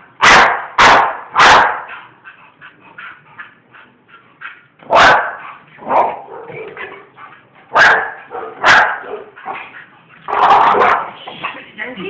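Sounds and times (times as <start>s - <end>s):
dogs barking: 0.2s - 2.1s, 4.4s - 11.7s.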